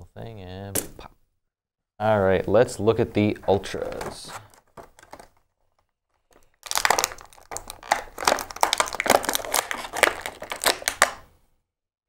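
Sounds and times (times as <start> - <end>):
plastic packaging crinkling: 3.7 - 11.3.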